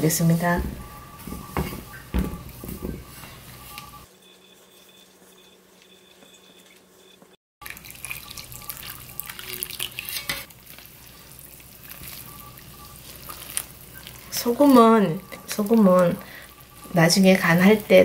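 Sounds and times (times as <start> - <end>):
liquid pouring into metal bowl: 7.6 - 13.6
spatula stirring wet paste: 7.6 - 18.0.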